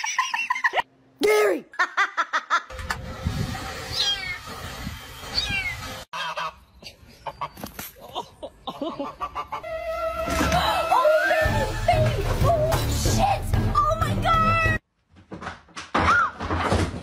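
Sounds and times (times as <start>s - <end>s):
goose honking: 6.2s - 6.6s.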